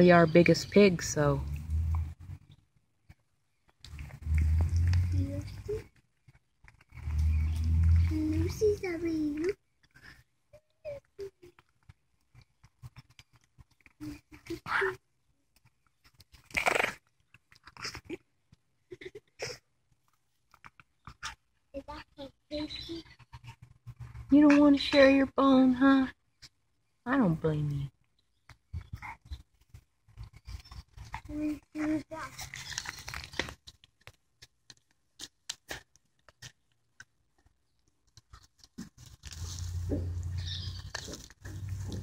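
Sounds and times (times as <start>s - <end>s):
teeth gnawing a bone: 1.5s - 5.1s, 5.9s - 8.1s, 9.4s - 14.8s, 15.5s - 18.7s, 19.9s - 21.7s, 28.0s - 42.0s
small dog snorting and grunting: 16.4s - 18.2s.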